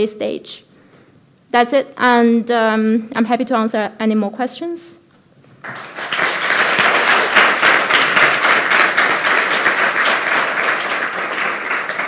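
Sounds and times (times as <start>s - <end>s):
audience applauding: 5.6s - 12.0s.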